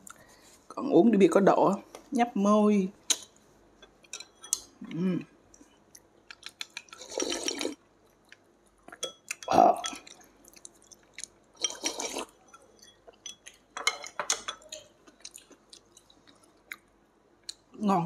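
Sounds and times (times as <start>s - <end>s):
wet slurps of porridge: 7.0s - 7.8s, 11.6s - 12.3s.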